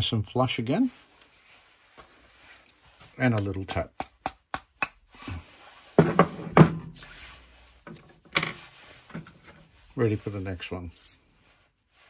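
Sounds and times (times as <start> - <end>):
tools knocking on wooden bench: 6.0 - 6.9.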